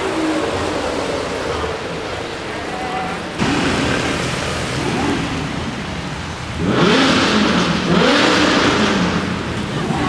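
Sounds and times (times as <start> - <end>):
car engine revving in blips: 6.4 - 10.0.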